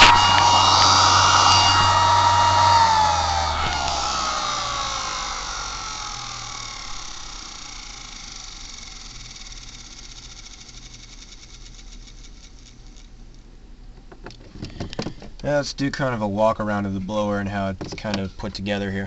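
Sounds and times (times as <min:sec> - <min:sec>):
fan motor whine winding down: 0:00.0 - 0:13.2.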